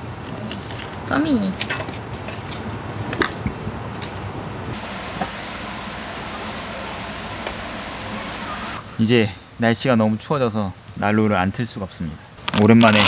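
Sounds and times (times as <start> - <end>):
mountain stream rushing: 4.4 - 9.3.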